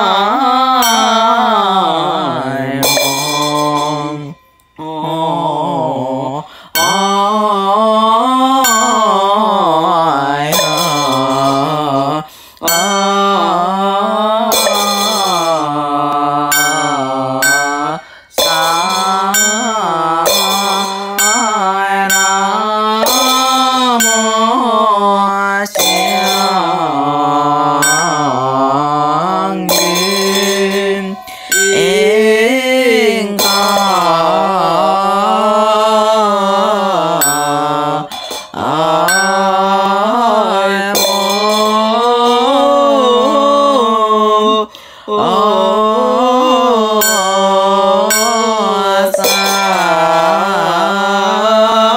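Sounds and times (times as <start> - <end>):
slow melismatic chanting: 0.0 - 51.9
light percussion strikes: 14.5 - 15.6.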